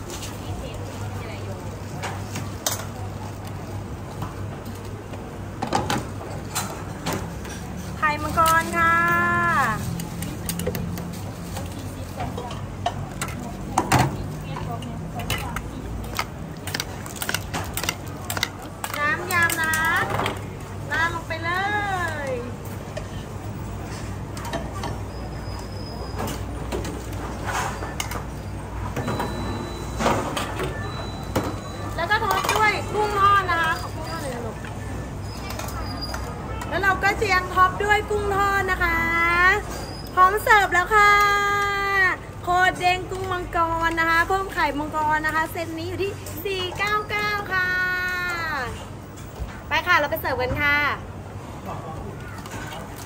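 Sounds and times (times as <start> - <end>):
metal utensils clinking on pots: 11.6 - 20.4.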